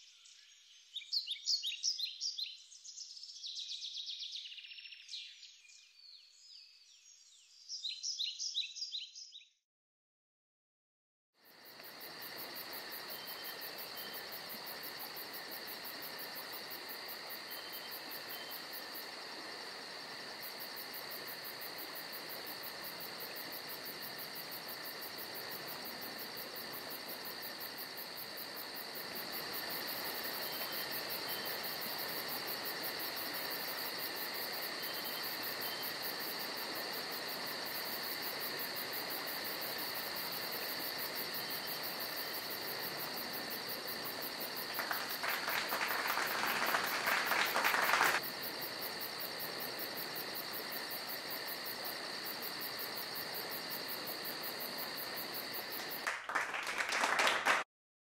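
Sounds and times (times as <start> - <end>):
insects chirping: 0.0 - 9.2, 11.4 - 57.6
constant hiss: 11.4 - 57.6.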